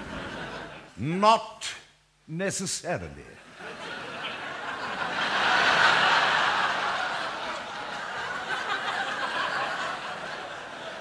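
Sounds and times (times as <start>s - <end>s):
audience laughing: 0.0s - 1.0s, 3.4s - 11.0s.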